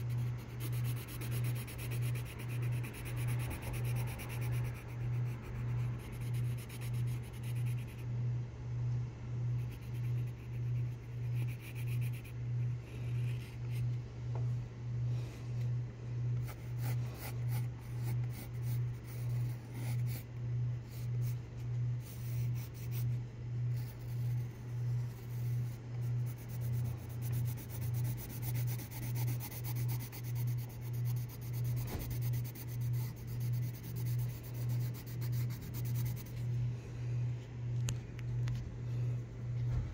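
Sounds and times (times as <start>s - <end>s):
pencil scratching on paper: 0.0s - 8.0s, 9.6s - 13.9s, 16.4s - 21.4s, 22.0s - 36.4s
loud pulsing low hum: 0.0s - 39.9s.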